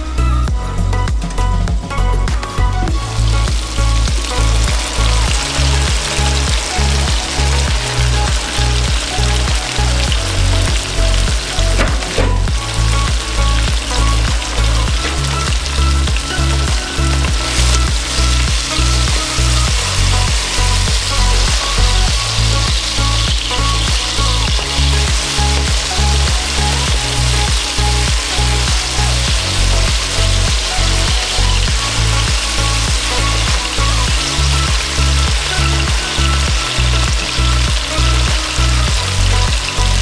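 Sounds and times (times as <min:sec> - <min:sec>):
background music with beat: 0:00.0 - 0:40.0
fish frying in hot oil: 0:02.9 - 0:40.0.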